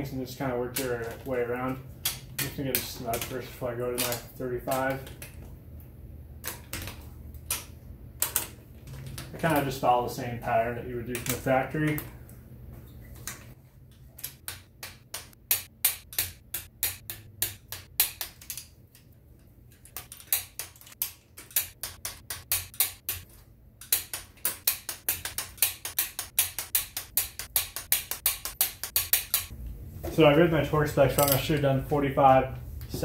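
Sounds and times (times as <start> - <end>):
ratchet wrench clicking: 23.9 - 29.5.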